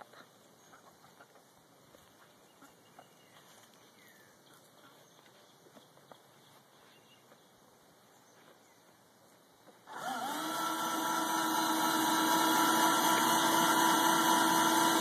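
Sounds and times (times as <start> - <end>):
electric screwdriver motor whine: 9.9 - 15.0.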